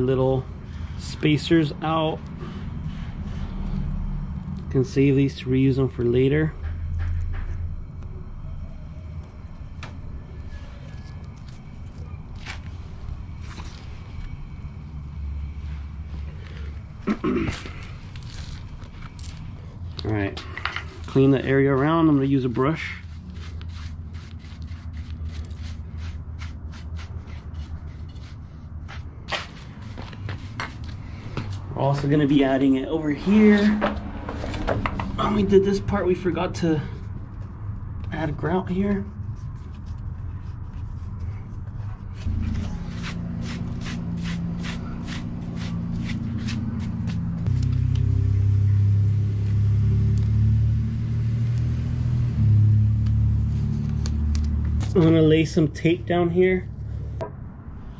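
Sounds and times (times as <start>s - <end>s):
steady low hum: 0.0s - 57.9s
paintbrush sweeping over tile: 22.1s - 30.9s.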